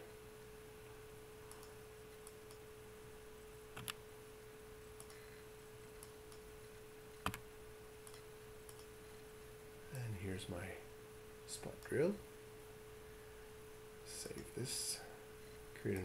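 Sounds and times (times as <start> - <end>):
faint electrical hum: 0.0 - 16.0
computer mouse clicks: 1.5 - 2.6, 3.8 - 4.0, 5.0 - 5.2, 5.9 - 6.5, 7.2 - 7.4, 8.0 - 8.9.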